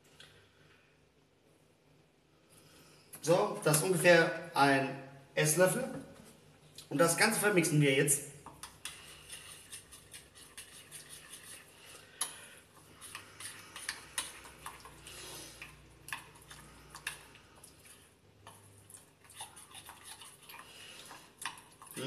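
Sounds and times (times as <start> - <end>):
fork scraping glass bowl: 8.7 - 17.3, 19.2 - 22.0.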